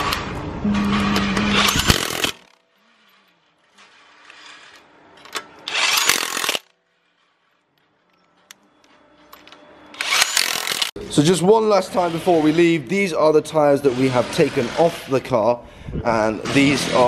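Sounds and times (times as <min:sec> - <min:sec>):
impact wrench bursts: 0:01.1 - 0:02.6, 0:05.6 - 0:06.8, 0:10.0 - 0:10.9.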